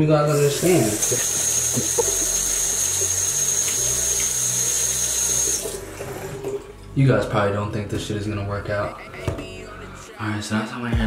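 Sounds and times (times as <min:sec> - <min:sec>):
tap water running and splashing: 0:00.3 - 0:06.7.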